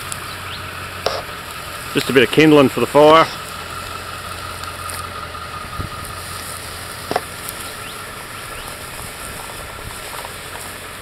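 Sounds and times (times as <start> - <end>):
truck engine idling: 0.0 - 11.0
short engine knocks: 1.0 - 1.4, 7.0 - 7.4.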